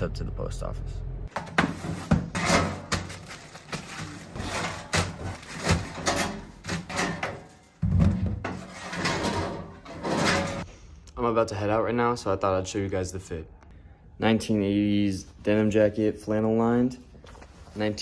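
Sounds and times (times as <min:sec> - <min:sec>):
metal hopper clunking open and shut: 0:04.4 - 0:10.7.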